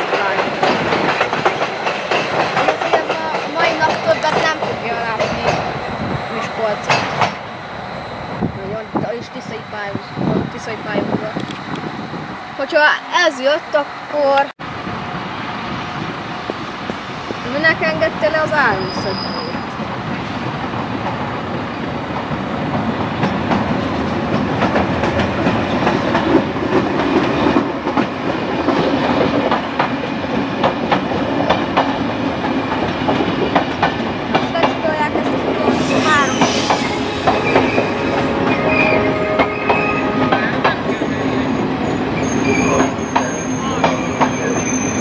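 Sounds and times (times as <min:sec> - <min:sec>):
wheels clicking over rail joints: 0:00.0 - 0:05.7
train rumbling past: 0:00.0 - 0:45.0
metallic wheel squeal: 0:18.7 - 0:19.7, 0:35.8 - 0:45.0.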